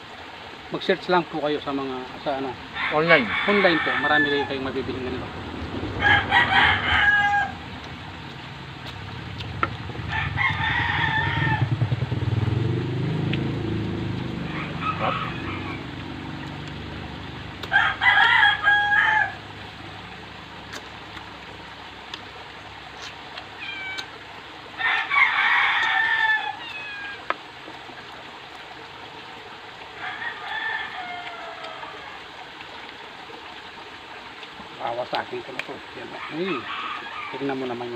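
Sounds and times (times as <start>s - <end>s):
roosters crowing: 2.3s - 9.1s, 9.8s - 16.4s, 17.6s - 19.8s, 23.5s - 27.4s, 30.0s - 32.4s, 36.0s - 37.9s
low rumble: 4.7s - 14.5s.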